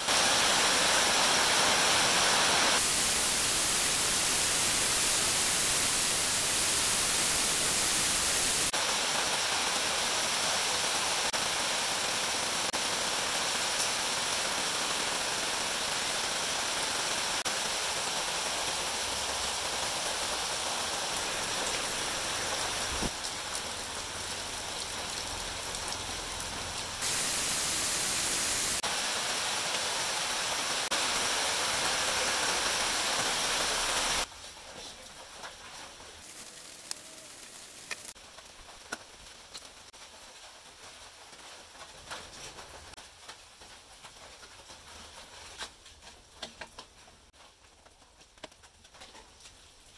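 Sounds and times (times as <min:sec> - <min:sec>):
loud static hiss: 0:00.0 - 0:24.1, 0:24.8 - 0:34.3, 0:36.1 - 0:38.2.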